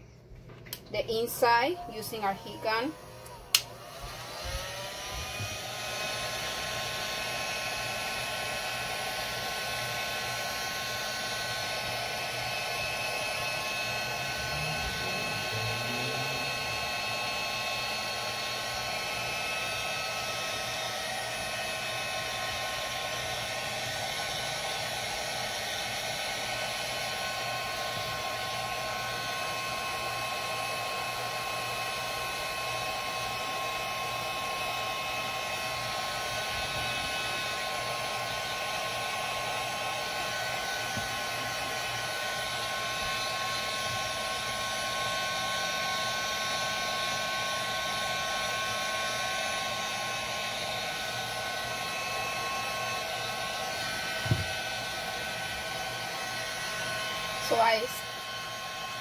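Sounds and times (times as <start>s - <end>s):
heat gun blowing hot air: 1.1s - 59.0s.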